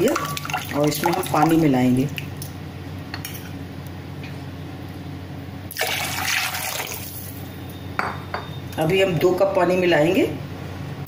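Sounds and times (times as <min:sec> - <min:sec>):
water pouring into a glass bowl: 0:00.0 - 0:01.6
faint steady hum: 0:00.0 - 0:11.0.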